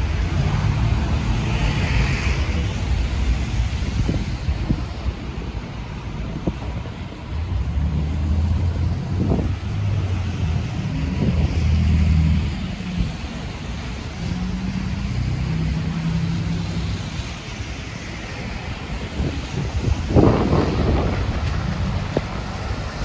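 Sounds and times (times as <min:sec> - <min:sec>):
street traffic hiss: 0:00.0 - 0:23.0
wind buffeting microphone: 0:00.0 - 0:23.0.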